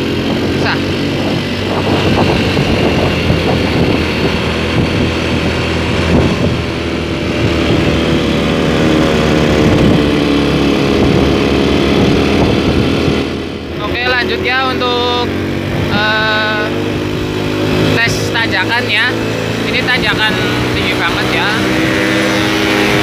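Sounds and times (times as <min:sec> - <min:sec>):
motorcycle engine pulling steadily: 0:00.0 - 0:23.0.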